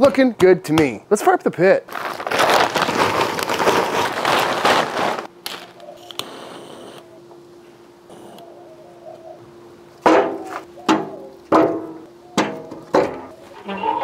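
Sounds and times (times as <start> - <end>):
charcoal clattering from a bag: 1.9 - 6.2
lighter hiss: 6.0 - 7.0.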